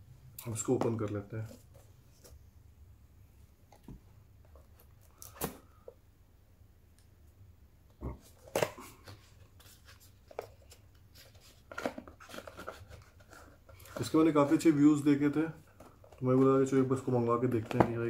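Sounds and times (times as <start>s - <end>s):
packaging rustling: 8.4s - 18.0s.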